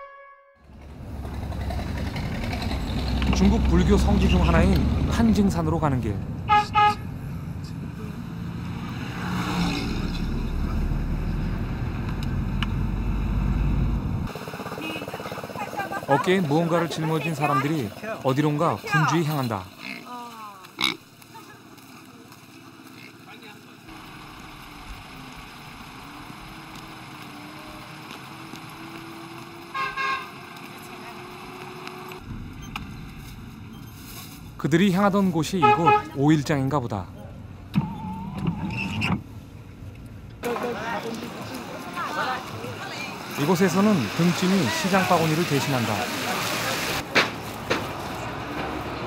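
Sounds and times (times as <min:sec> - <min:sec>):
vehicle horn toots: 0:00.0 - 0:00.6, 0:06.5 - 0:07.1, 0:29.7 - 0:30.4, 0:35.6 - 0:36.2
car engine and road noise: 0:00.0 - 0:20.0, 0:20.8 - 0:49.0.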